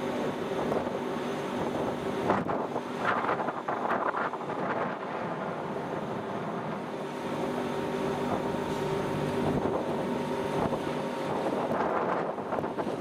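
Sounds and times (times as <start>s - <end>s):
boat engine humming: 0.0s - 13.0s
wind buffeting microphone: 0.5s - 6.9s, 9.3s - 13.0s.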